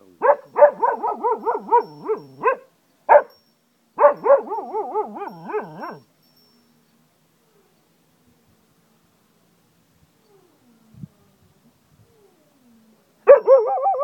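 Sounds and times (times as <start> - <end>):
dog howling: 4.4 - 6.0.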